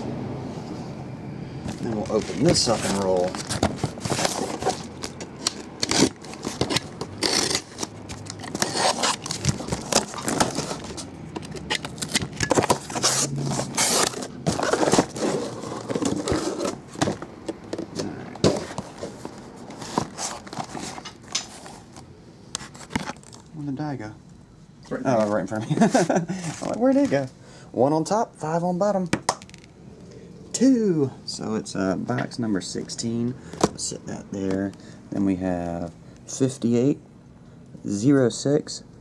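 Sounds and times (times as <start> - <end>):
cardboard tearing and crackling: 1.9 - 17.0
box cutter cutting cardboard: 5.8 - 10.9, 12.1 - 16.8
boxes sliding out: 11.8 - 17.3.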